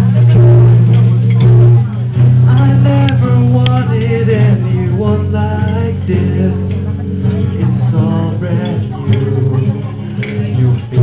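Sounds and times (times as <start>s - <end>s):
strummed acoustic guitar: 0.0s - 11.0s
man singing into microphone: 2.5s - 11.0s.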